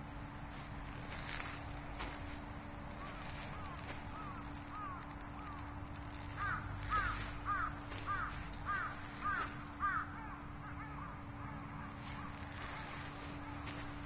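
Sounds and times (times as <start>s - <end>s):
crow cawing: 2.9s - 13.6s.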